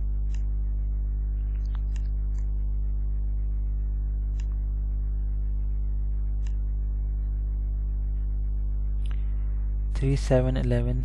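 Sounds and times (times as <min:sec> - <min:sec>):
electrical mains hum: 0:00.0 - 0:11.0
faint clicks: 0:04.3 - 0:04.6, 0:06.3 - 0:06.7.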